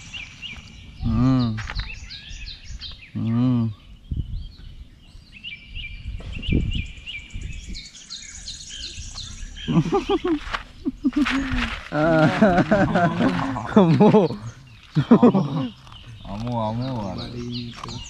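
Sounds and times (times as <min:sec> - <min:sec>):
birds chirping: 0:00.0 - 0:18.0
dull low thuds: 0:06.0 - 0:06.9.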